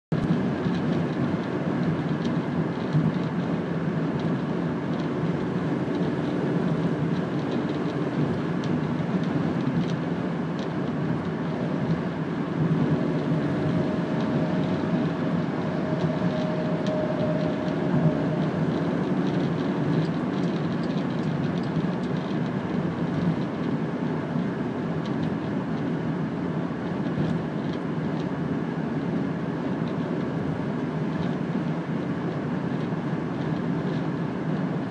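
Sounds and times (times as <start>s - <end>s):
car road and engine noise: 0.1s - 34.9s
faint steady whine: 4.3s - 21.4s.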